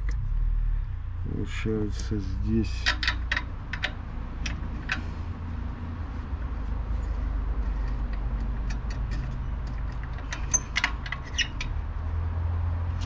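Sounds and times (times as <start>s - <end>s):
steady low rumble: 0.0s - 10.4s
clicks and taps of metal parts: 2.7s - 5.4s, 7.0s - 11.7s.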